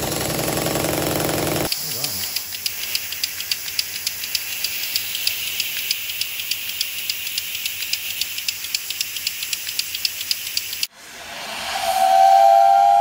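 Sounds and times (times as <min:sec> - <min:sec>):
pump exhaust hissing: 0:00.0 - 0:10.9
piston clicking: 0:01.7 - 0:10.9.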